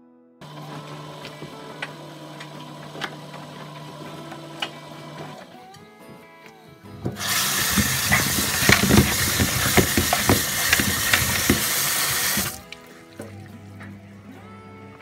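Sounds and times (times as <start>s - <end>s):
tap water running into colander: 0.4s - 5.4s, 7.1s - 13.4s
squash pieces knocking: 7.0s - 13.4s.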